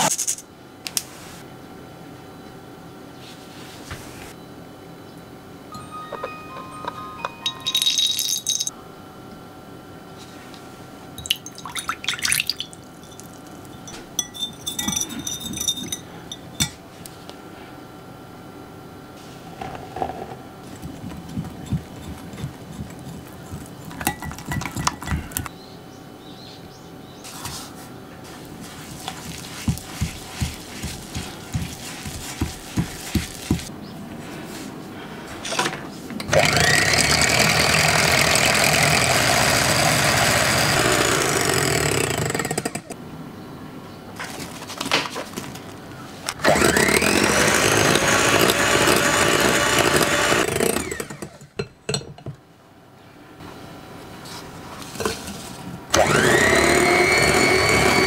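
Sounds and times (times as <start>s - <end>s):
utensil tapping glass jug: 6.6s - 8.7s, 11.2s - 16.8s, 20.8s - 25.5s
electric hand mixer whirring: 36.3s - 42.8s, 46.4s - 51.2s, 55.9s - 58.0s.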